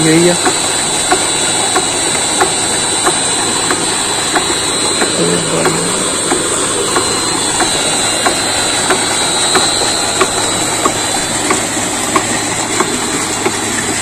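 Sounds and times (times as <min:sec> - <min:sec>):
electric motor driving water pump: 0:00.0 - 0:14.0
regular ticking: 0:00.0 - 0:14.0
thin high whine: 0:01.6 - 0:12.6.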